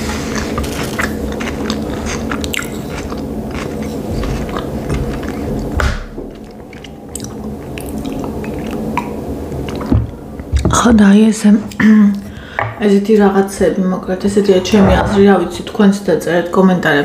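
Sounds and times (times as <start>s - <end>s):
close chewing with wet smacks: 0.2s - 10.6s.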